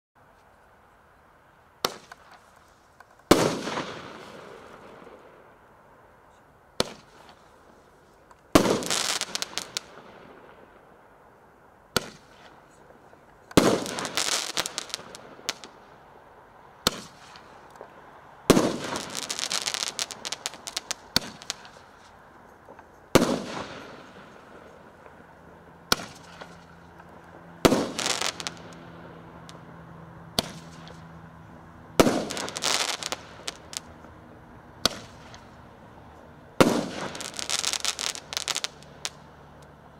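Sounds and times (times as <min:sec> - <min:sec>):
firework burst crackling: 0:03.3 - 0:05.2, 0:08.5 - 0:10.4, 0:13.6 - 0:15.9, 0:18.5 - 0:22.2, 0:23.1 - 0:29.7, 0:30.3 - 0:31.0, 0:31.9 - 0:33.9, 0:34.8 - 0:35.6, 0:36.6 - 0:39.3.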